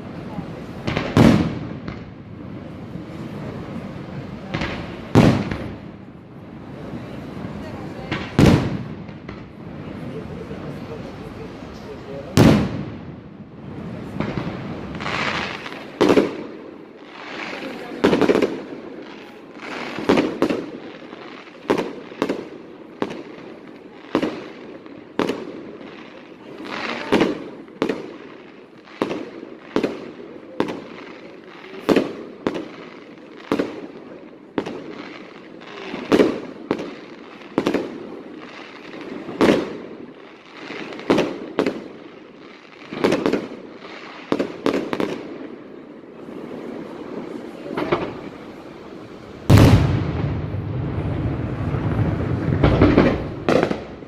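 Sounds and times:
fireworks bangs: 0:00.0 - 0:54.0
rumbling echo: 0:49.4 - 0:54.0.

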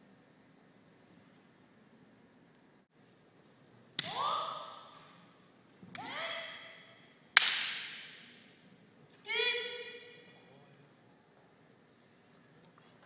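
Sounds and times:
weapon striking with sharp cracks: 0:04.0 - 0:05.2, 0:07.4 - 0:08.4
high-pitched shouts: 0:04.1 - 0:04.9, 0:06.0 - 0:07.0, 0:09.2 - 0:10.3.

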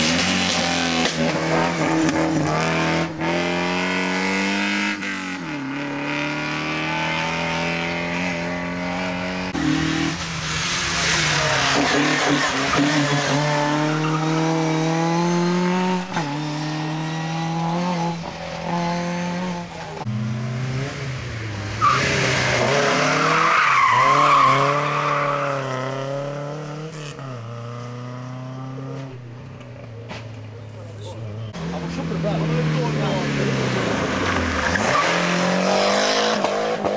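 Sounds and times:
rally car engine revving: 0:00.0 - 0:36.9.

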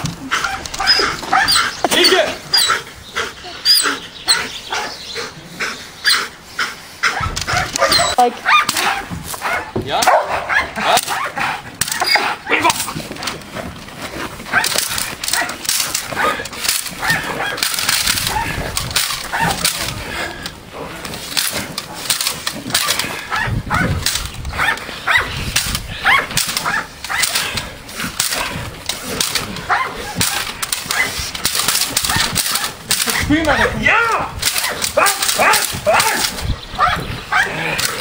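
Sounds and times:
scuffling struggle: 0:00.0 - 0:38.0
dog vocalisations: 0:00.2 - 0:13.0, 0:22.7 - 0:25.4, 0:34.5 - 0:38.0
stick slapping bite suit: 0:07.0 - 0:13.5, 0:14.4 - 0:36.5.

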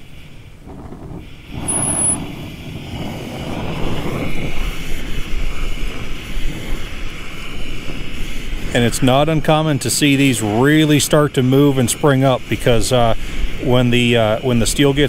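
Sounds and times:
torch flame hissing: 0:00.0 - 0:15.0.

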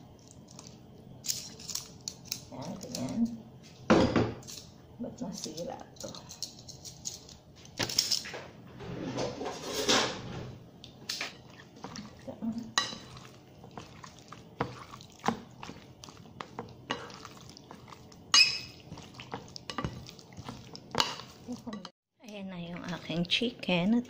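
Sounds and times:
fork scraping ceramic bowl: 0:12.8 - 0:21.9.

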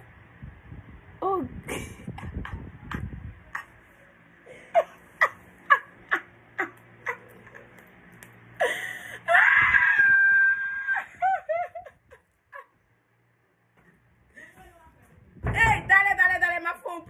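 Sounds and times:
woman laughing hard: 0:01.7 - 0:03.8, 0:04.5 - 0:07.8, 0:10.8 - 0:12.8.

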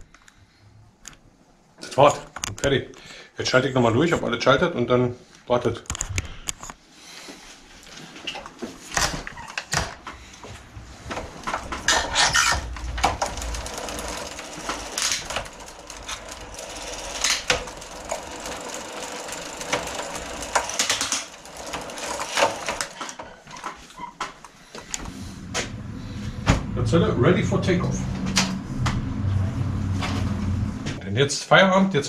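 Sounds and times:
bicycle chain ticking: 0:11.7 - 0:23.2.

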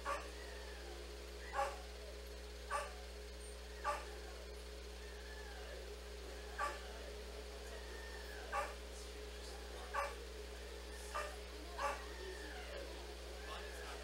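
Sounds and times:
small dog barking: 0:00.0 - 0:00.4, 0:01.4 - 0:01.9, 0:02.7 - 0:03.1, 0:03.8 - 0:04.4, 0:06.5 - 0:07.0, 0:08.3 - 0:08.8, 0:09.8 - 0:10.2, 0:10.9 - 0:12.7.

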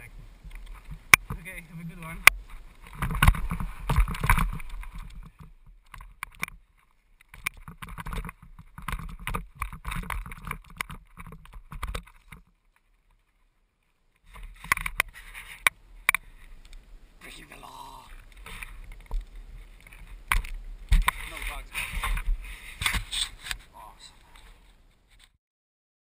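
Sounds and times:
mountain bike rattling on dirt trail: 0:00.0 - 0:12.6, 0:18.2 - 0:23.5.

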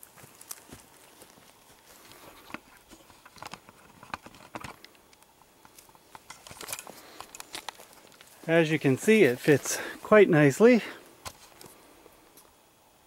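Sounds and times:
footsteps on grass: 0:00.0 - 0:03.2, 0:06.8 - 0:11.9
camera handling clicks and rustles: 0:02.3 - 0:08.4.

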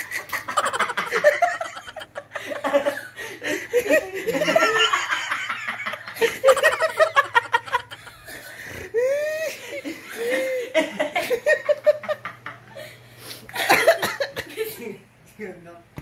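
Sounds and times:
young men laughing: 0:00.0 - 0:14.9.

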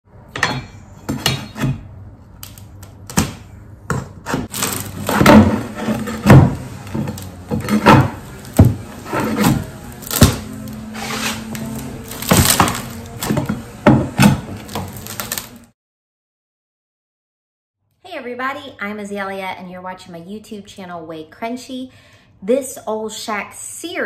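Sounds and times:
knocks and thumps on wood: 0:05.1 - 0:09.6.

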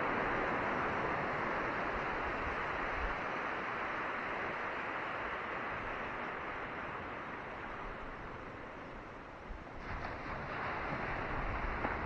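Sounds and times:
waves washing onto rocky shore: 0:09.7 - 0:12.0.

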